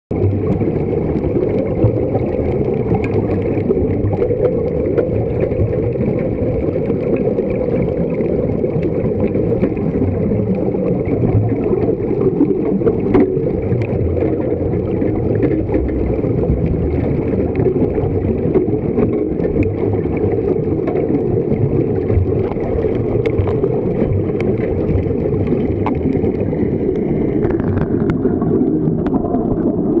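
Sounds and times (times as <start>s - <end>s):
air bubbling: 0.1s - 30.0s
muffled underwater rumble: 0.1s - 30.0s
faint clicks: 22.1s - 28.2s.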